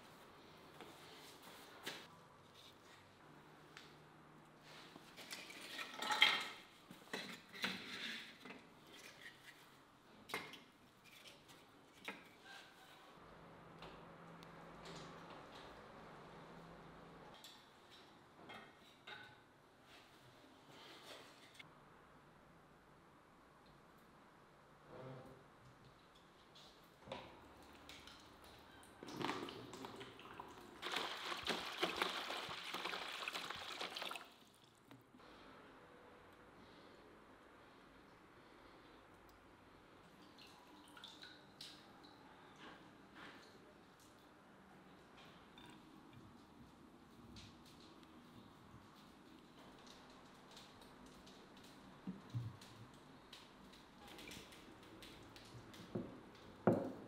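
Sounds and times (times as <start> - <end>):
water pouring into plastic basin: 29.0 - 34.8.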